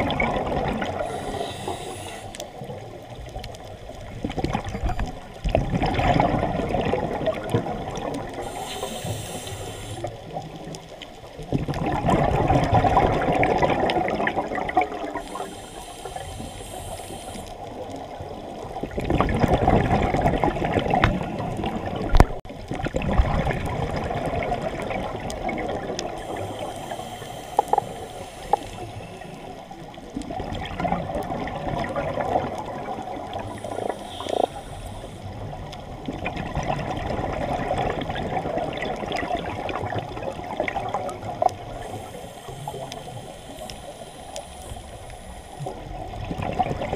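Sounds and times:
exhaled bubbles rushing: 0:00.0 - 0:03.2, 0:04.0 - 0:09.2, 0:11.4 - 0:29.6, 0:30.2 - 0:34.5, 0:35.3 - 0:44.1, 0:45.6 - 0:46.9
diver inhaling through regulator: 0:00.8 - 0:02.6, 0:08.4 - 0:10.2, 0:15.0 - 0:17.7, 0:26.1 - 0:29.8, 0:33.3 - 0:35.5, 0:41.7 - 0:45.8.

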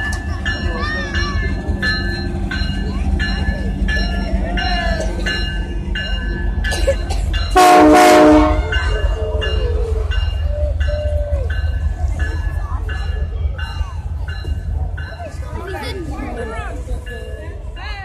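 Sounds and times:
bell ringing: 0:00.0 - 0:15.4
train rumble: 0:00.0 - 0:18.0
locomotive horn blast: 0:07.5 - 0:08.8.

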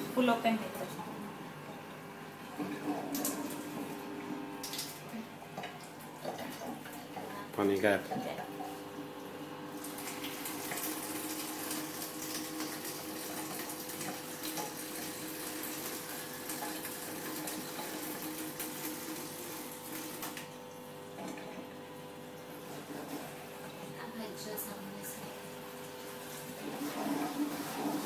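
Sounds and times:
tap water running into sink: 0:02.5 - 0:08.8, 0:09.8 - 0:21.8, 0:25.3 - 0:28.0.

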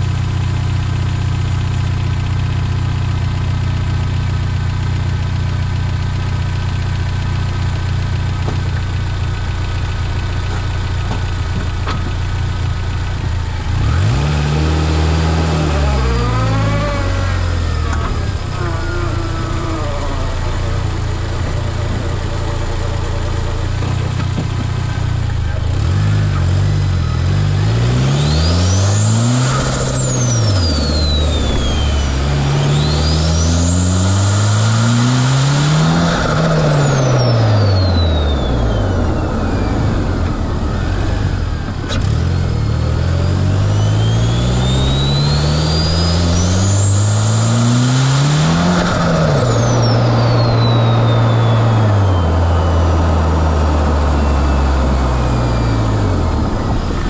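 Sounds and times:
car engine accelerating hard: 0:00.0 - 0:57.0
turbo whistle: 0:28.1 - 0:35.0, 0:43.1 - 0:47.8.

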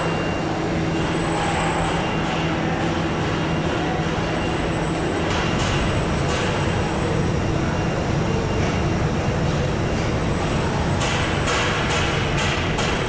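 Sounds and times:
assembly line machinery: 0:00.0 - 0:13.0
constant hum: 0:00.0 - 0:13.0.

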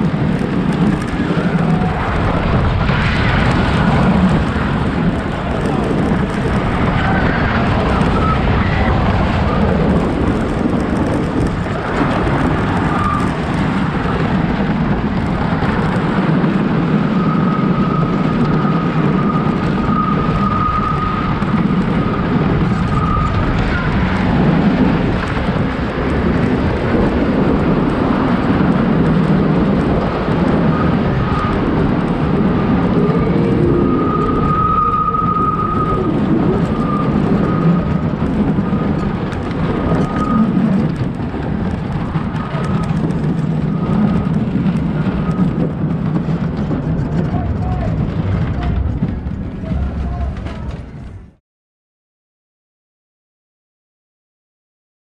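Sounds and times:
roller coaster wheels rumbling: 0:00.0 - 0:51.4
high squeal: 0:03.8 - 0:09.9, 0:16.8 - 0:24.4, 0:30.6 - 0:39.0, 0:39.6 - 0:41.0.

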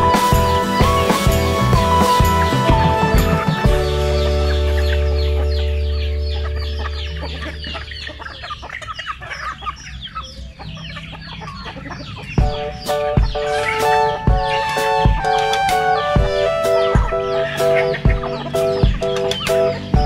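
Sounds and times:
held low music chord: 0:00.0 - 0:08.1, 0:12.2 - 0:20.0
plucked music notes: 0:00.0 - 0:08.2, 0:12.4 - 0:20.0
chicks peeping: 0:00.0 - 0:20.0
hens clucking: 0:00.0 - 0:20.0.

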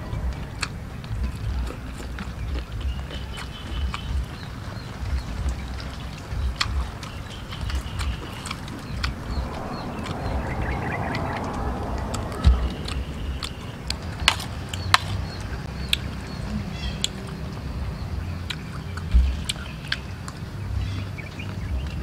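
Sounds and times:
faint birds chirping: 0:00.0 - 0:22.0
person chewing: 0:00.3 - 0:10.5, 0:18.4 - 0:20.4.

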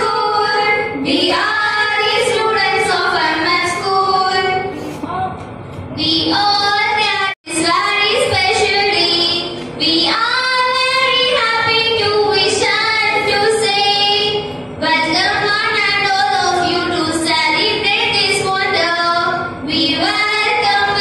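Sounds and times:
girls singing together: 0:00.0 - 0:04.7, 0:06.0 - 0:21.0.

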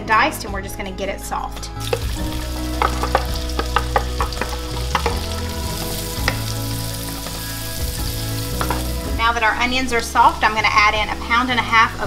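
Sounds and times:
onion sizzling in a skillet: 0:01.8 - 0:11.2.

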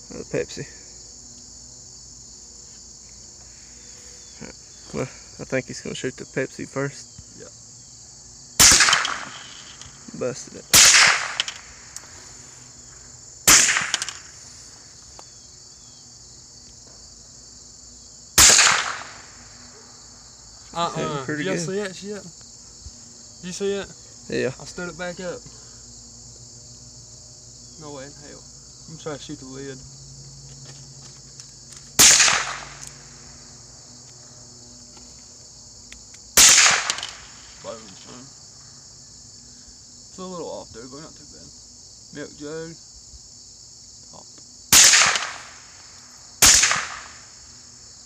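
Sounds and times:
crickets chirring: 0:00.0 - 0:48.0
insects buzzing: 0:00.0 - 0:48.0
rifle shots: 0:08.6 - 0:09.9, 0:10.7 - 0:11.9, 0:13.4 - 0:14.3, 0:18.4 - 0:19.4, 0:32.0 - 0:32.9, 0:36.4 - 0:37.5, 0:44.7 - 0:45.7, 0:46.4 - 0:47.3.

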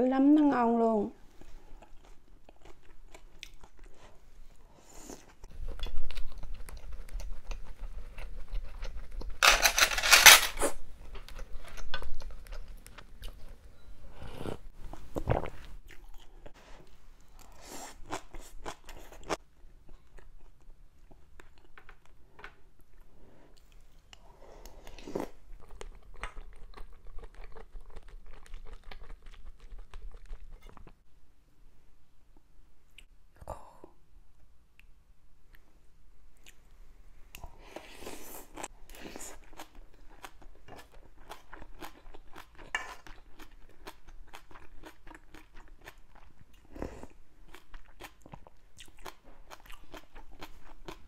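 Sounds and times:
chewing and crunching: 0:01.4 - 0:04.2, 0:25.2 - 0:31.0, 0:38.4 - 0:51.0.

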